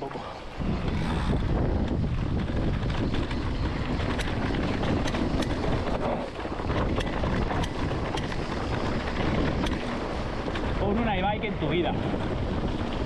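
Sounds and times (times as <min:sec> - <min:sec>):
bike rattling over bumps: 0:00.0 - 0:13.0
bike tyres rolling on dirt: 0:00.0 - 0:13.0
wind rumble on microphone: 0:00.0 - 0:13.0.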